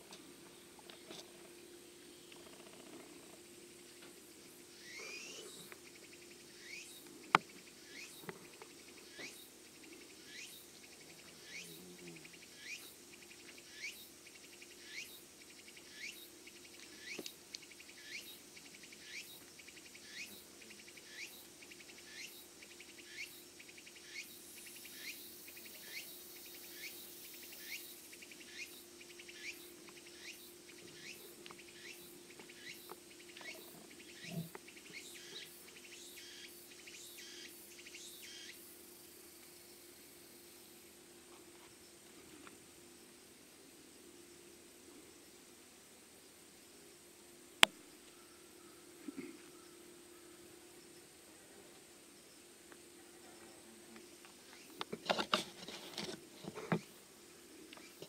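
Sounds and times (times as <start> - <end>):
high-pitched insect pulsing: 4.4 - 40.8
insect sweeping chirps: 4.7 - 7.0.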